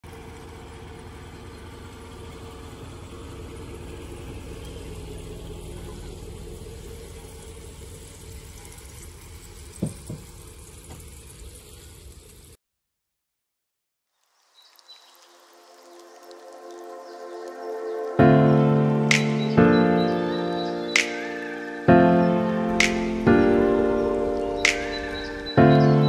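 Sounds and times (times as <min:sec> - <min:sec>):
pickup truck engine idling: 0:00.0 - 0:11.2.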